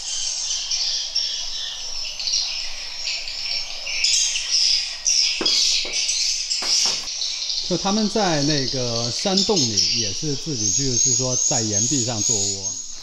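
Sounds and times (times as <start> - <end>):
swiftlets twittering: 0.0 - 13.0.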